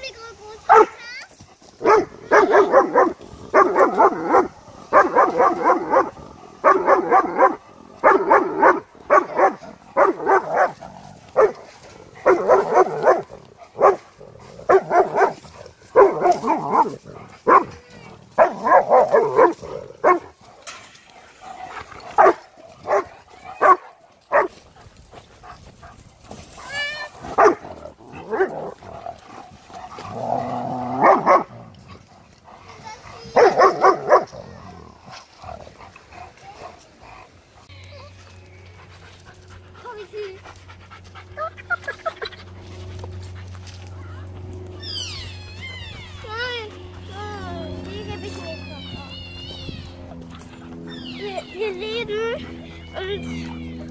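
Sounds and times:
dog barking: 0.7 - 1.0, 1.8 - 10.8, 11.4 - 11.6, 12.2 - 14.1, 14.7 - 20.3, 22.2 - 24.6, 27.3 - 28.5, 31.0 - 31.5, 33.3 - 34.4.

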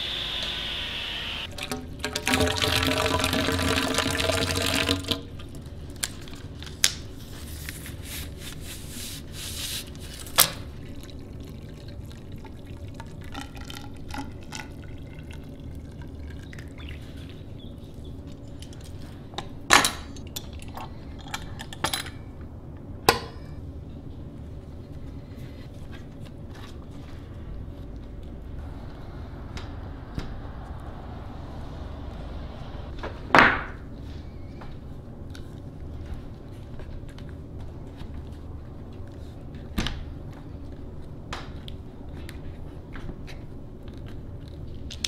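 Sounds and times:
water pouring into pipe: 1.5 - 5.2, 10.0 - 17.3.

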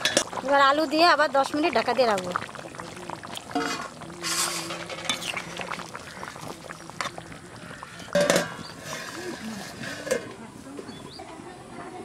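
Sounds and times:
curry splashing: 1.3 - 10.1
metal ladle scraping a pot: 3.4 - 10.4.

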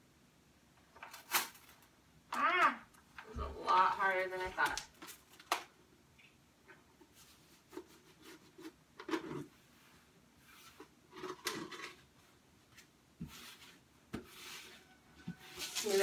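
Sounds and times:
hands rubbing wallpaper: 9.6 - 11.0.

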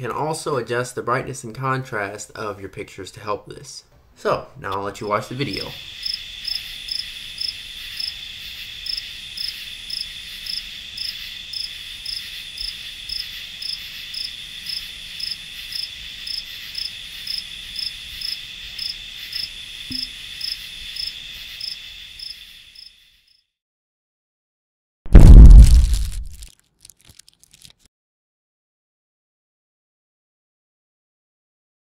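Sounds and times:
high insect trill: 5.3 - 23.5
cricket chirping: 5.4 - 23.5.

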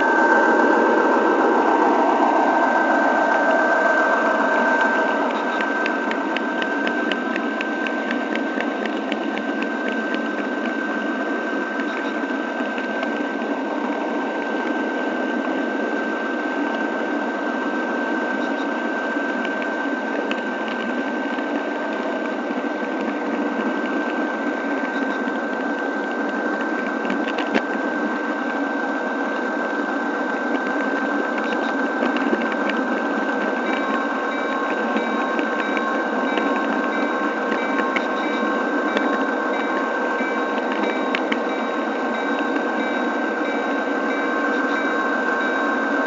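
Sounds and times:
whining tones: 0.0 - 12.1, 30.8 - 46.0
model train wheels and motor whirring: 17.7 - 46.0.

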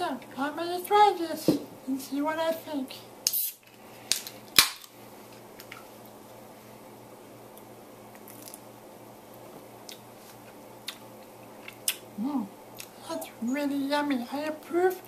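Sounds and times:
low room hum: 0.0 - 15.0
lip smacks and mouth clicks: 9.8 - 12.1, 12.8 - 13.0.

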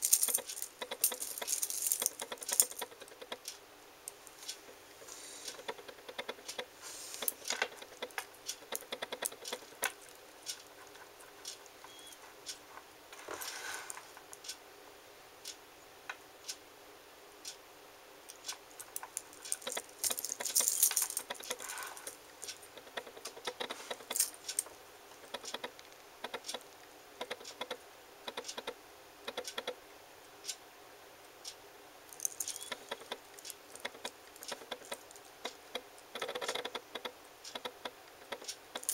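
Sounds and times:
metal watch bracelet clinking: 0.0 - 2.9, 18.8 - 22.7.

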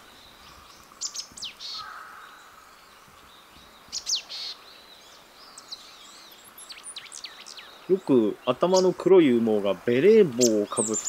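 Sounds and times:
soft bird chirps: 0.0 - 11.0
tit calling: 7.9 - 11.0.

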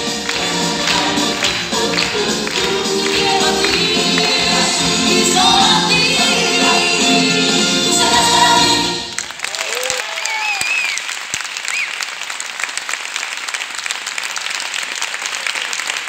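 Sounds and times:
group singing: 0.0 - 9.2
audience applause: 0.0 - 16.0
cheering whoops: 9.4 - 11.1.

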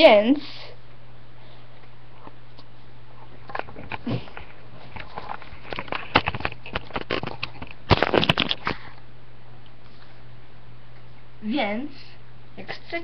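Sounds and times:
microphone handling noise: 2.2 - 9.0.

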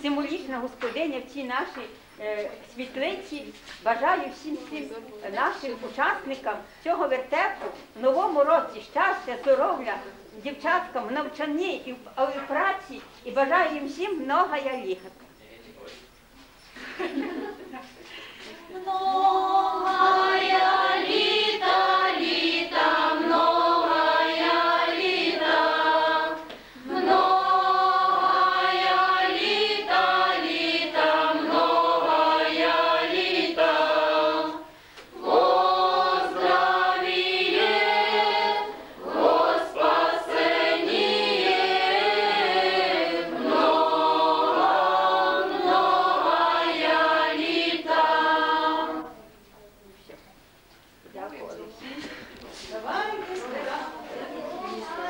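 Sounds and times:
women and girls singing unaccompanied: 18.4 - 49.5, 52.9 - 55.0.

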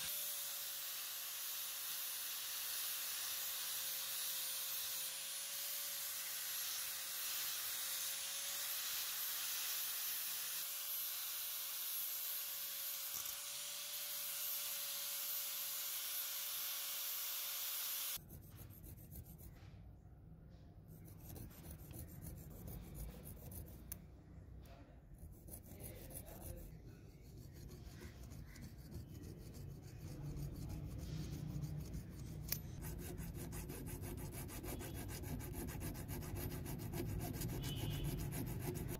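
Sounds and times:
hand file rasping on steel: 20.9 - 24.0, 25.2 - 38.9.

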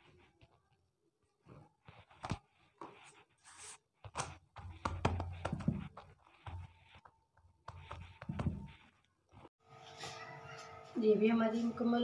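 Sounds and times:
hands patting dough: 3.9 - 9.5.

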